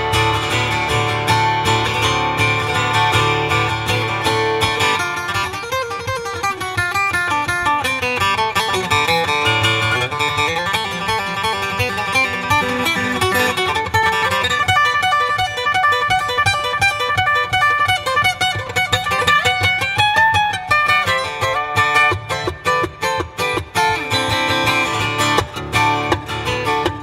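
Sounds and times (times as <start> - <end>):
acoustic guitar plucking: 0.0 - 27.0.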